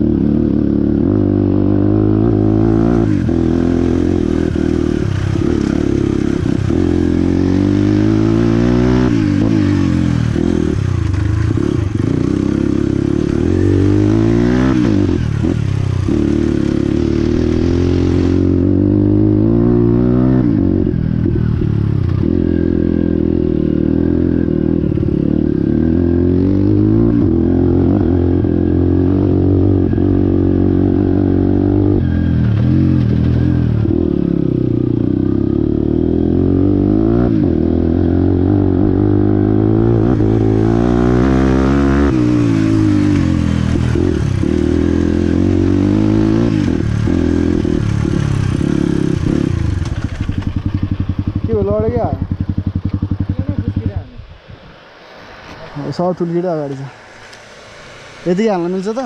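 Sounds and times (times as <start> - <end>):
motorcycle engine revving: 0.0 - 59.0
steady hiss: 54.4 - 59.0.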